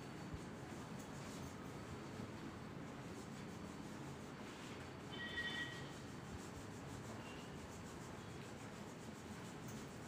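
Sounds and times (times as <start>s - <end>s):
crayon scratching on paper: 5.4s - 10.0s.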